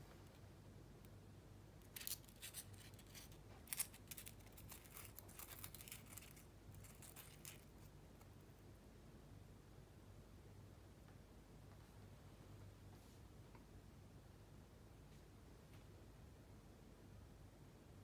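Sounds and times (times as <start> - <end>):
paper crinkling between fingers: 1.9 - 7.9.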